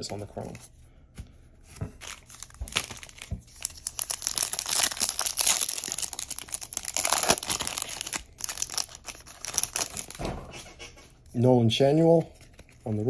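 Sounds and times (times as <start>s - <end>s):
foil wrapper crinkling: 2.0s - 10.2s.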